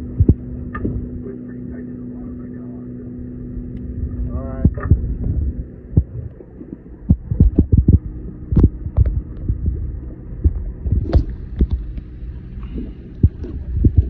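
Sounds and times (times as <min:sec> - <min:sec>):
boat machinery humming: 0:00.0 - 0:14.0
dull thumps: 0:10.4 - 0:12.0.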